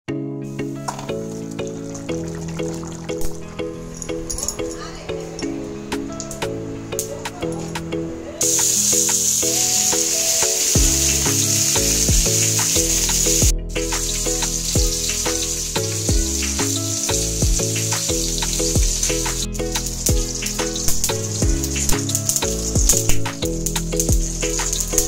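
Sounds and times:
background music with beat: 0:00.4 - 0:04.5, 0:05.4 - 0:25.0
fish sizzling in oil: 0:00.6 - 0:03.5, 0:08.4 - 0:25.0.

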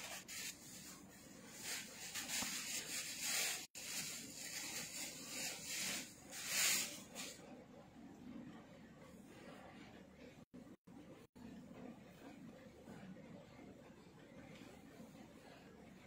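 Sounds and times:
silk fabric rustling: 0:00.0 - 0:07.4.

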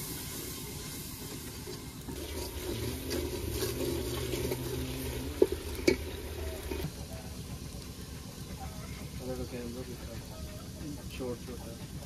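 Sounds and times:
water running and splashing: 0:00.6 - 0:06.9.

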